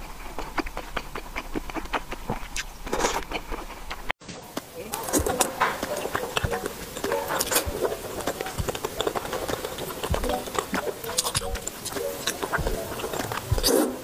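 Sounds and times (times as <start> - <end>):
slurping and chewing noodles: 0.0 - 14.0.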